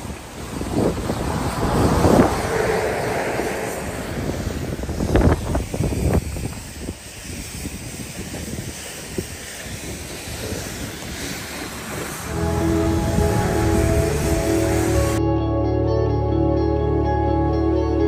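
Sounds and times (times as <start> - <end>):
vehicle driving off-road rushing: 0.0 - 6.6, 10.2 - 15.2.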